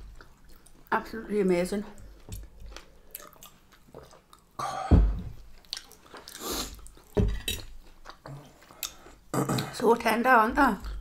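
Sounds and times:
people chewing food: 0.0 - 9.8, 10.6 - 11.0.

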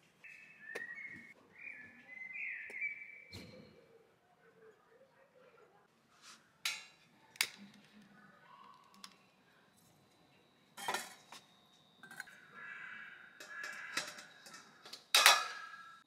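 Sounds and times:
metal clank: 13.4 - 16.0.

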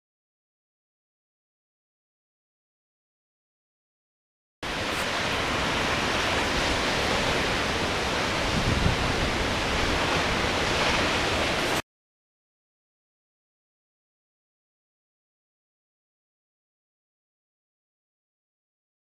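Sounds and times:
waterfall roaring: 4.6 - 11.8.

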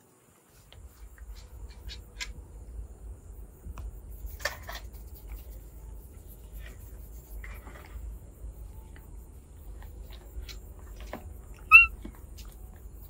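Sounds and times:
low steady rumble: 0.6 - 13.0
monkey squeak: 11.6 - 12.0.

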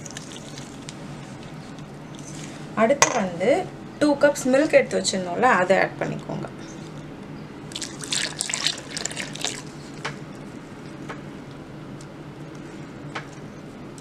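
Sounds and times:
milk pouring and splashing: 7.7 - 10.0.

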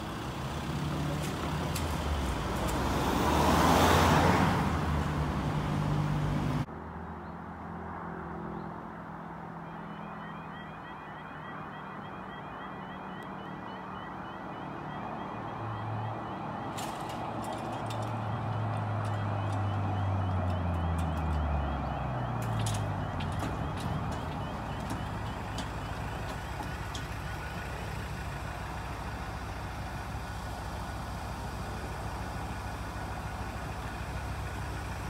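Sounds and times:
car driving past: 0.9 - 6.7
warbling crossing alarm: 9.6 - 29.4.

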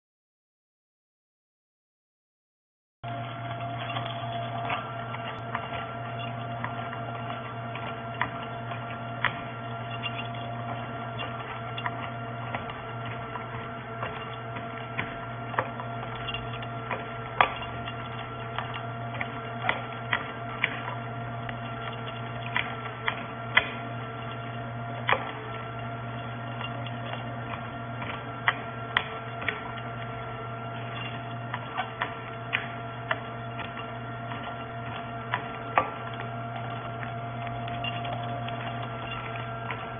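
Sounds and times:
nut grinder humming: 3.0 - 39.9.

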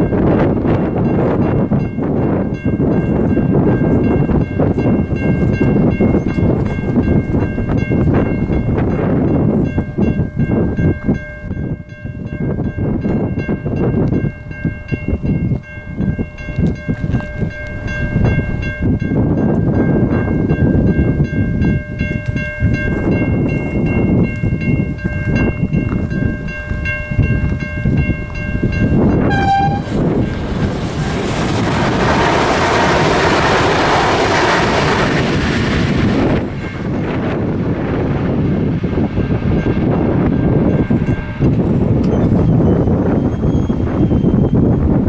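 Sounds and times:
train passing with high whine: 0.0 - 45.0
train horn: 29.2 - 30.1, 39.6 - 41.9.

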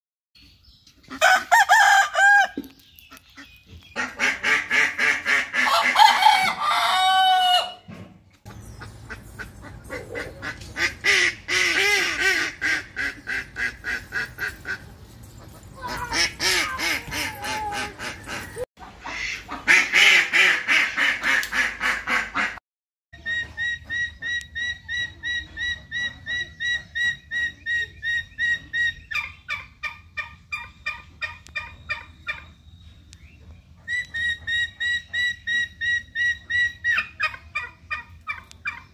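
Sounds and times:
ducks calling: 1.0 - 7.8, 8.5 - 22.6
roosters crowing: 1.1 - 2.7, 5.0 - 8.0.

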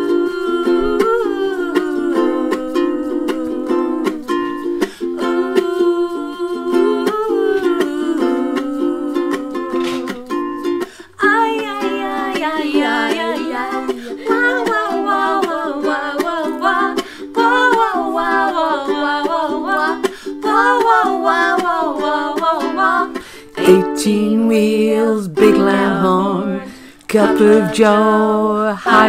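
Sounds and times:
ukuleles strumming: 0.0 - 29.0
voices singing wordlessly: 0.0 - 29.0.

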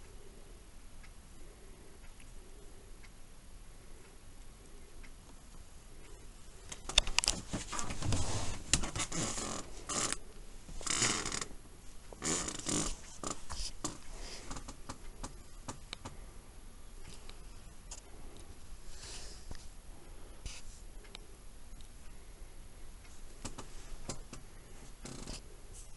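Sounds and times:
small clicks: 5.0 - 7.8.

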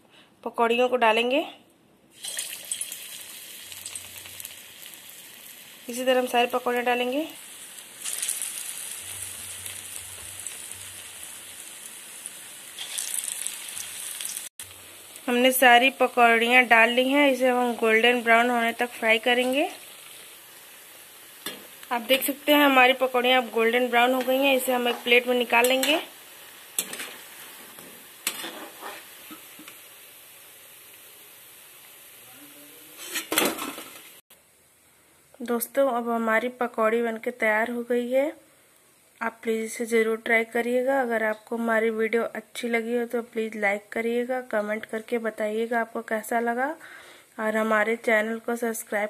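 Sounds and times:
deep-frying sizzle: 2.1 - 34.2.

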